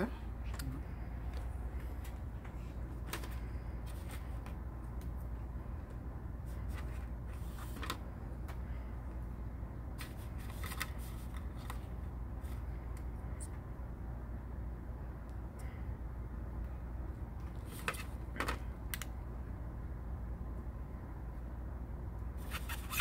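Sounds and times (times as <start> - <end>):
steady low hum: 0.0 - 23.0
plastic tray and paper rustling: 10.0 - 11.9.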